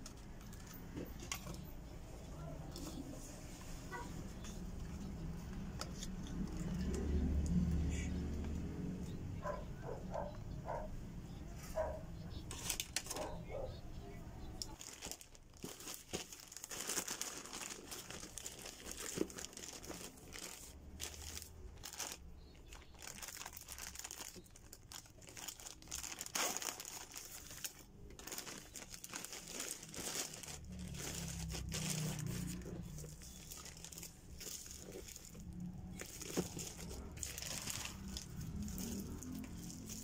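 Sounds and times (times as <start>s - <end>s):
plastic bag crinkling: 14.6s - 40.0s.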